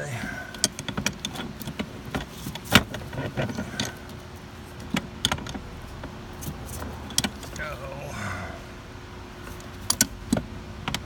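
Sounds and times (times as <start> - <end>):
metal wrenches clicking and knocking: 0.0 - 4.2.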